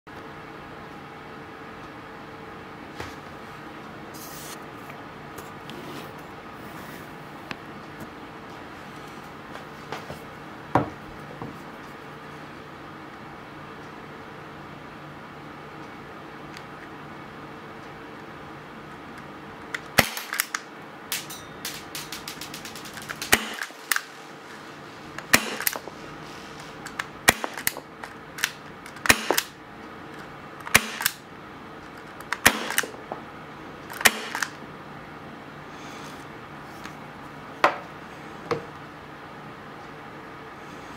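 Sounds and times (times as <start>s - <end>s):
quick clicks: 19.8s - 24.2s
airsoft pistol shots popping: 20.0s - 24.0s, 25.3s - 25.8s, 27.3s - 27.7s, 29.0s - 29.5s, 30.7s - 31.2s, 32.4s - 32.9s, 34.0s - 34.4s.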